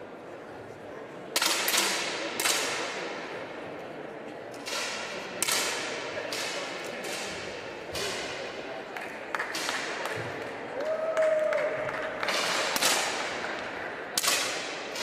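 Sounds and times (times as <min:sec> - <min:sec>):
air pistol shots cracking: 0:01.4 - 0:03.0, 0:14.2 - 0:15.0.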